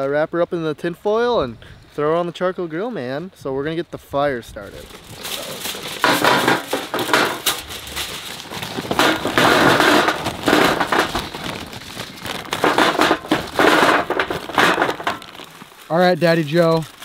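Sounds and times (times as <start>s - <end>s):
aluminium foil crinkling: 4.6s - 17.0s
paper bag rustling: 4.6s - 17.0s
charcoal clattering into metal tray: 4.8s - 16.8s.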